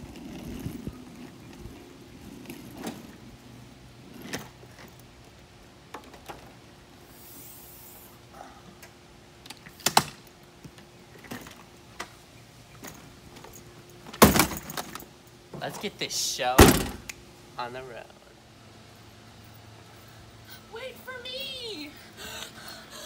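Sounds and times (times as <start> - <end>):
suitcase wheels rumbling on concrete: 0.0 - 6.9.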